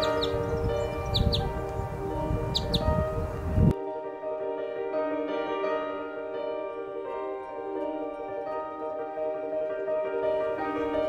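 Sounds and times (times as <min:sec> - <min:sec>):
soft instrumental background music: 0:00.0 - 0:11.0.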